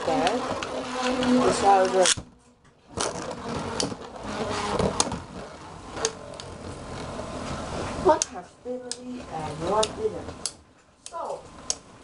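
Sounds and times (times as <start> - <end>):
spinning tops whirring: 0.0 - 8.4.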